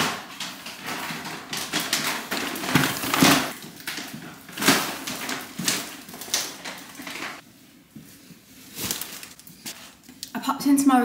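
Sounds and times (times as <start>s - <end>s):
shopping bag rustling: 0.0s - 7.4s, 8.1s - 10.0s.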